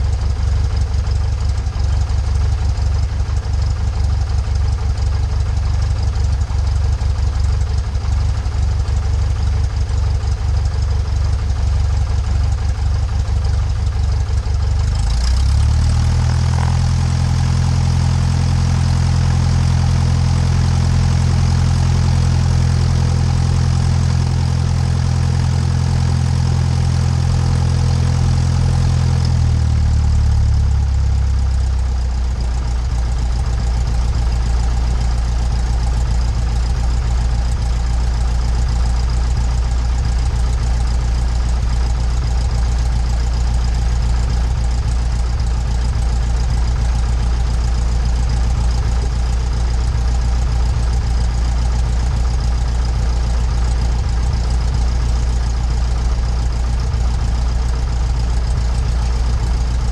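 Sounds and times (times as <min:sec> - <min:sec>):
airplane engine and propeller running: 0:14.8 - 0:31.0.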